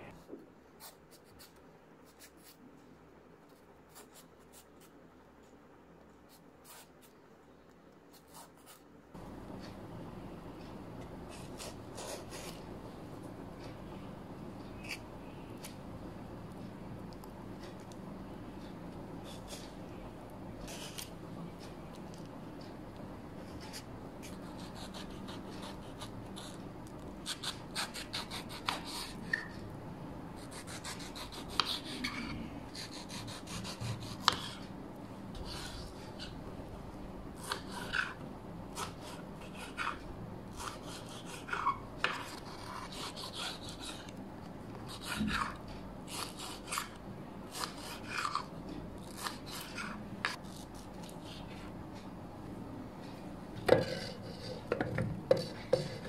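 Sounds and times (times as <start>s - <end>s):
knife slicing fruit: 27.2s - 29.5s, 30.4s - 34.7s, 37.4s - 44.1s, 44.9s - 51.4s.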